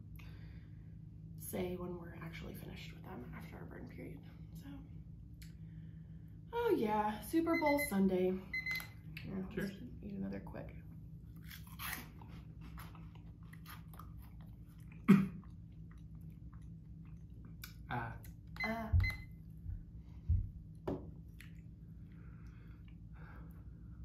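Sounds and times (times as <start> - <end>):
cheese puffs being chewed: 11.3 - 18.6.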